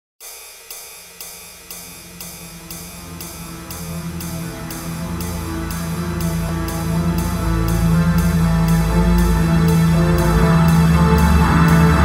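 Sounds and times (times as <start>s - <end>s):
background music with beat: 0.2s - 12.0s.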